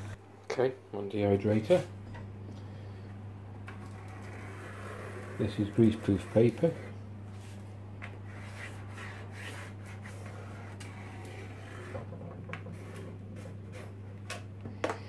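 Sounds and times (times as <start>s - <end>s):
pen scratching on paper: 8.3s - 12.1s, 12.7s - 13.9s.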